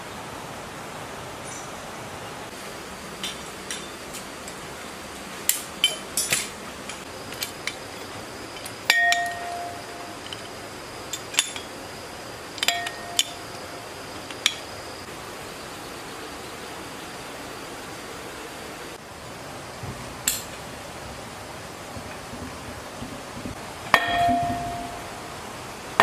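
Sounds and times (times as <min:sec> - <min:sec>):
metal tools clinking on metal: 0:03.2 - 0:04.0, 0:05.5 - 0:11.8, 0:12.6 - 0:13.6, 0:14.2 - 0:14.7
ringing metal strikes: 0:08.8 - 0:10.3, 0:12.6 - 0:13.6, 0:23.9 - 0:25.1.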